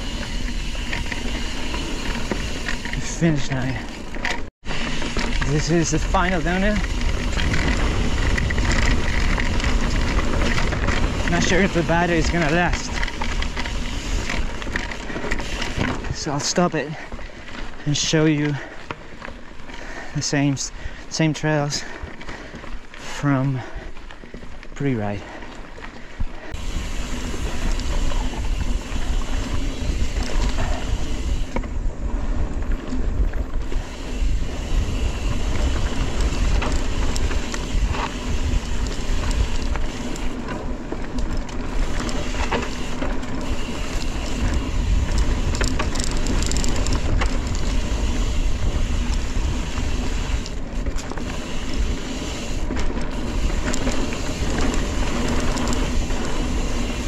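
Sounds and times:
bike tyres rolling on dirt: 0:00.0 - 0:57.0
wind on microphone: 0:05.0 - 0:16.2, 0:26.2 - 0:40.8, 0:41.6 - 0:57.0.

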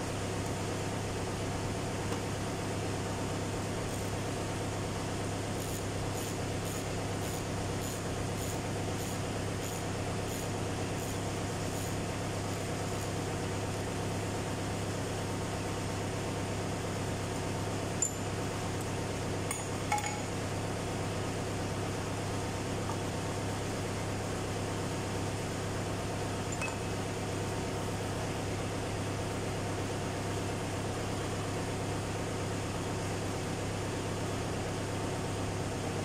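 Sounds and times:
workshop machinery humming: 0:00.0 - 0:30.2.

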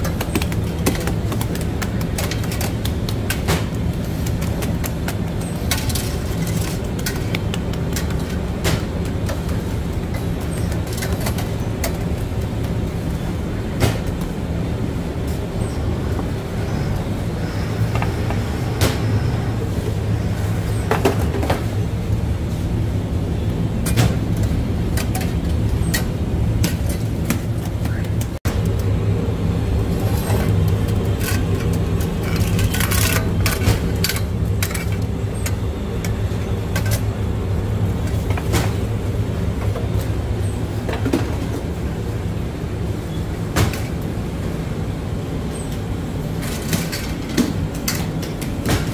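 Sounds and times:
sharp knocks and clatters: 0:00.0 - 0:12.8.

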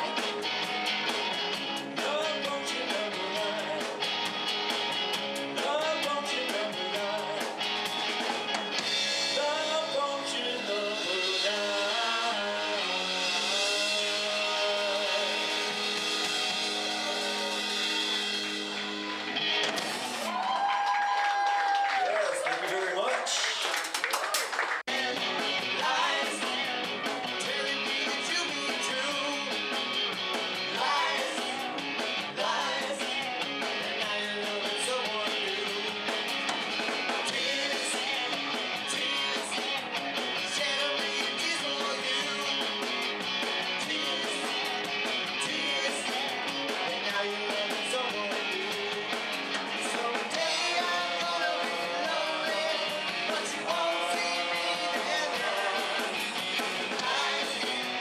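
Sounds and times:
person singing: 0:00.0 - 0:00.6, 0:02.0 - 0:04.1, 0:05.5 - 0:07.6, 0:09.2 - 0:19.2, 0:24.9 - 0:29.7, 0:30.6 - 0:36.2, 0:37.2 - 0:39.8, 0:40.4 - 0:43.0, 0:43.7 - 0:58.0
drum kit: 0:00.0 - 0:21.4, 0:24.8 - 0:58.0
bass guitar: 0:00.0 - 0:21.5, 0:24.9 - 0:58.0
electric guitar: 0:00.0 - 0:21.8, 0:24.9 - 0:58.0.

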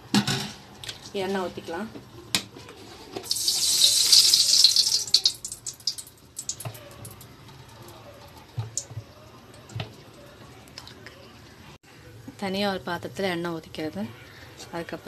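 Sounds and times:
oil pouring into metal pot: 0:03.3 - 0:06.7.

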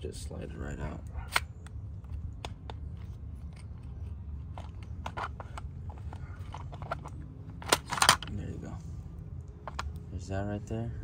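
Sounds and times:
low background rumble: 0:00.0 - 0:11.0
plastic and metal parts clicking: 0:01.3 - 0:08.4.

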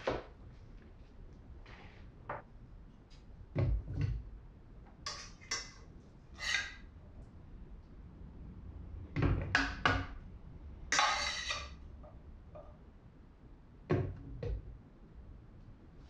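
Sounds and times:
spatula scraping a metal pot: 0:05.1 - 0:06.8, 0:10.9 - 0:11.8.

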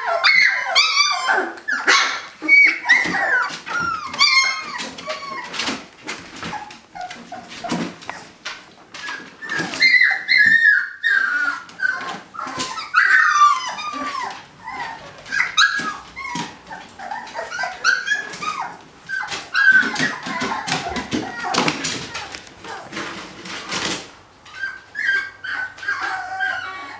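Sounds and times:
puppies whimpering and whining: 0:00.0 - 0:26.9.

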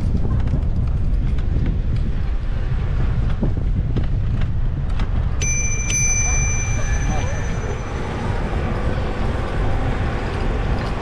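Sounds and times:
steady low rumble: 0:00.0 - 0:11.0
bicycle bell ringing: 0:05.4 - 0:09.0.

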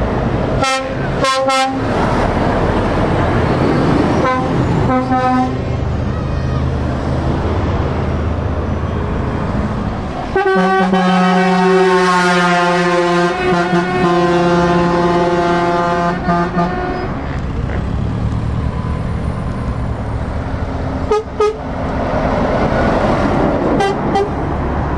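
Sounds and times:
traffic passing: 0:00.0 - 0:24.9
truck air horn blast: 0:00.6 - 0:01.9, 0:04.2 - 0:05.6, 0:10.3 - 0:17.3, 0:21.1 - 0:21.7, 0:23.8 - 0:24.4.

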